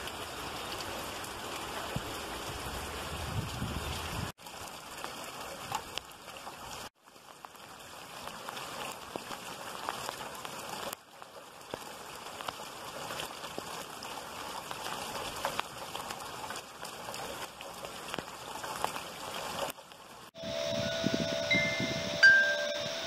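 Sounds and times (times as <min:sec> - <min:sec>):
heavy rain splashing on pavement: 0:00.0 - 0:21.6
metal tube wind chimes ringing: 0:20.4 - 0:23.0.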